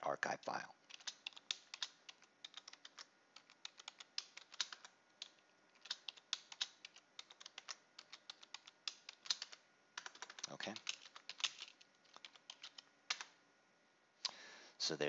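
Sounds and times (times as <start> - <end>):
keyboard typing: 0.8 - 13.3.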